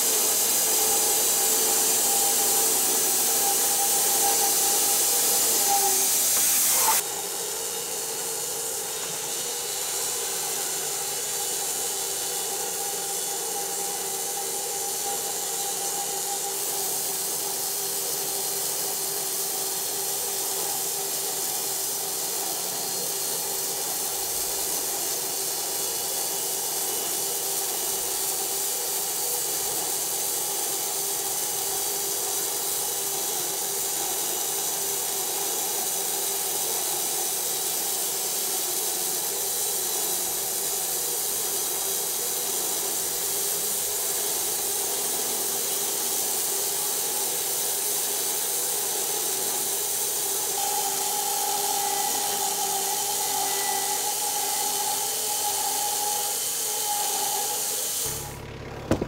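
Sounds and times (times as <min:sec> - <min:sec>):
saw blade hissing in wood: 0:00.0 - 0:59.0
machine hum: 0:58.0 - 0:59.0.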